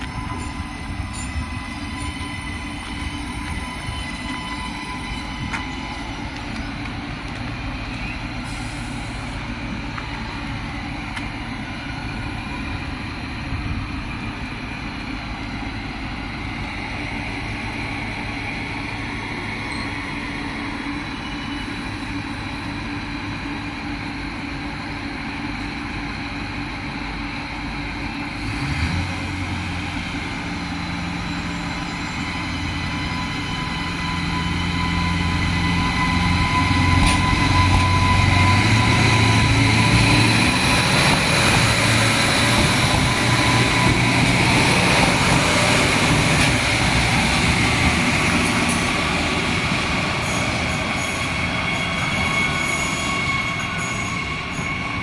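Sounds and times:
high-pitched whines: 0.0s - 13.4s, 29.1s - 55.0s
diesel railcar engine running: 0.0s - 55.0s.

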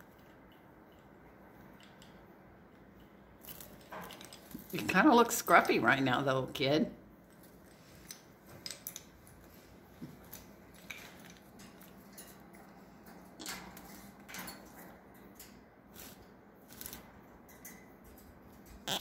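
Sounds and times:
bird claws clicking on wire cage: 10.3s - 19.0s.

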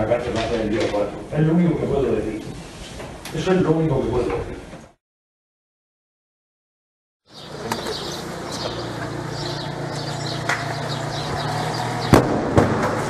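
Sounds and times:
sharp bangs: 10.0s - 13.0s.

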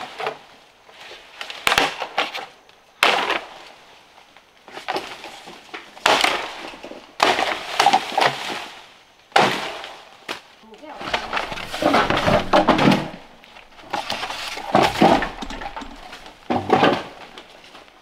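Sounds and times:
sharp wooden knocks: 11.0s - 17.4s.

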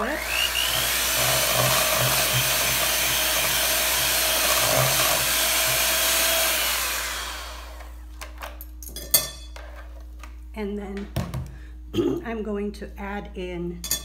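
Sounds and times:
electric hand mixer running: 0.0s - 8.0s.

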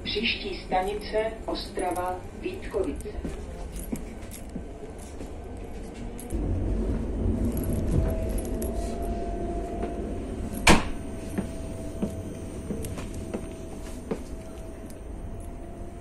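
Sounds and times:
electric train whine: 0.0s - 16.0s
train interior low rumble: 0.0s - 16.0s
light rattling and handling noise: 1.8s - 6.4s.

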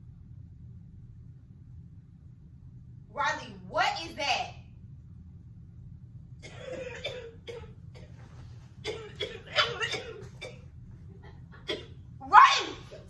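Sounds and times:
ceiling fan hum: 0.0s - 13.0s
woman coughing and crying out: 6.4s - 8.2s, 8.8s - 10.8s, 11.4s - 12.2s.

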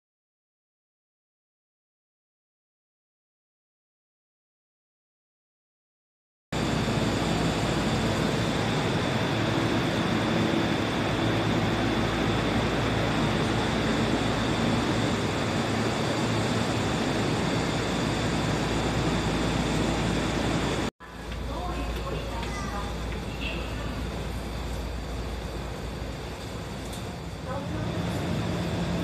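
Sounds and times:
faint high whine: 6.6s - 29.0s
train running rumble: 6.6s - 29.0s.

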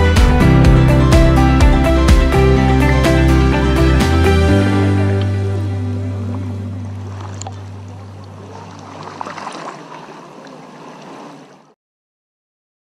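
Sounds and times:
held low music note: 4.4s - 8.9s
underwater gurgling and crackling: 6.2s - 11.8s.

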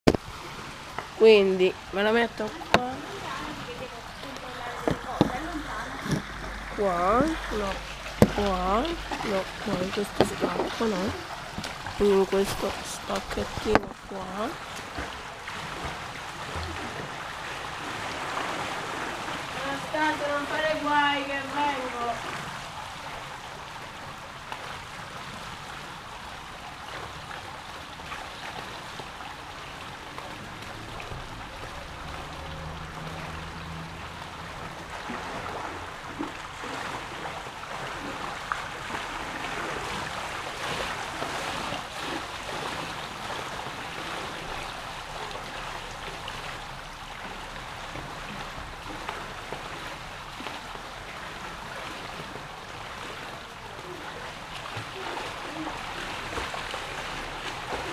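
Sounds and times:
faint swimming splashes: 0.1s - 57.9s
pool water rushing and trickling: 0.1s - 57.9s.

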